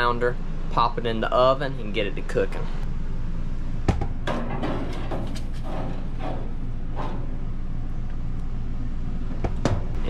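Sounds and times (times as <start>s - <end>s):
steady low hum: 0.0s - 10.0s
metal tray clattering: 4.3s - 7.3s.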